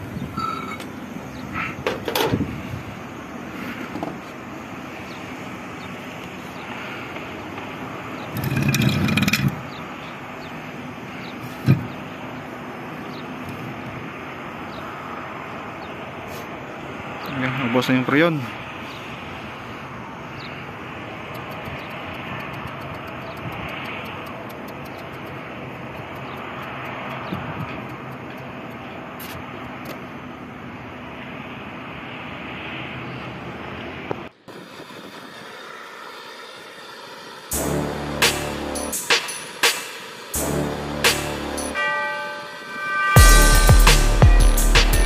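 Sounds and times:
outdoor rumble and hiss: 0.0s - 41.8s
steady background noise: 0.0s - 45.0s
faint fast regular ticking: 20.3s - 29.0s.

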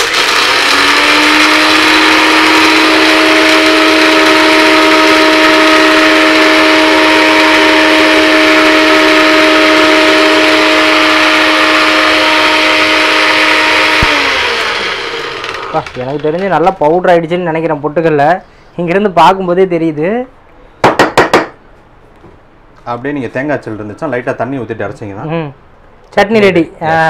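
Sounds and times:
blender motor high whine: 0.0s - 16.5s.

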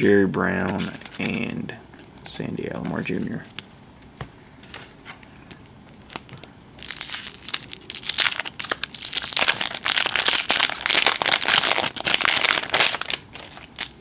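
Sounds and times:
foil wrapper tearing and crinkling: 6.0s - 14.0s.

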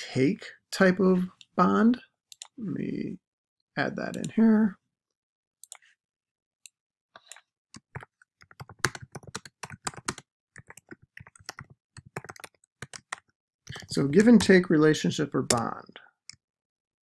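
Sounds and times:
typing on computer keyboard: 7.2s - 14.6s.

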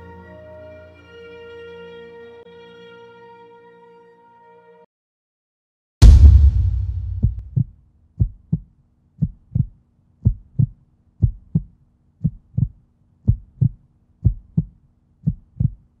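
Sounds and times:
heartbeat thumps: 6.0s - 15.9s.

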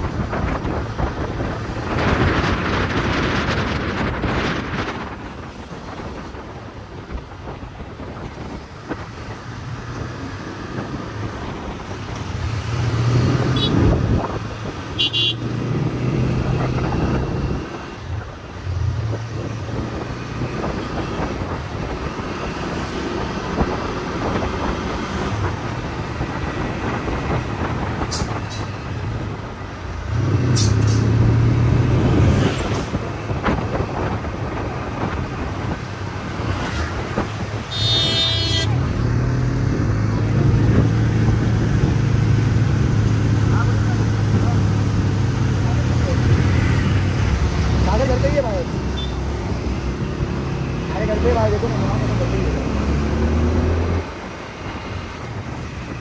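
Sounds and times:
road noise: 0.0s - 56.0s
short horn toots: 37.7s - 38.7s.

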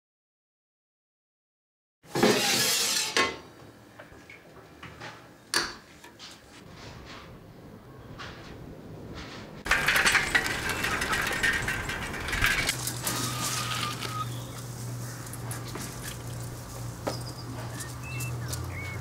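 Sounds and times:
bicycle rattling: 9.6s - 19.0s
bicycle brakes squealing: 13.0s - 14.6s, 17.0s - 19.0s.

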